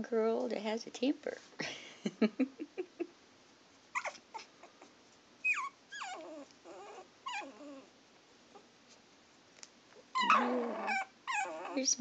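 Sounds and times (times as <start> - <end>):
puppies whimpering and squealing: 4.0 - 4.5, 5.4 - 7.9, 10.2 - 11.9.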